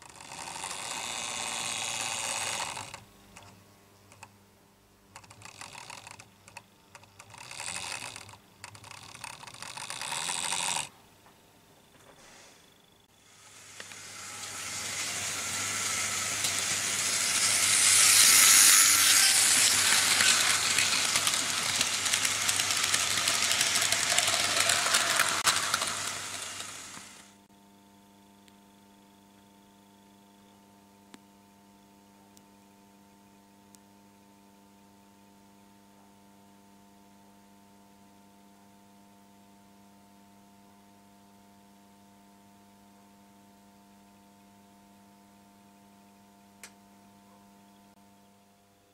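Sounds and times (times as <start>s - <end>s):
faint electrical hum: 0.0s - 48.9s
small clicks: 2.5s - 4.3s, 5.1s - 10.9s
loud hiss of escaping steam: 13.2s - 27.4s.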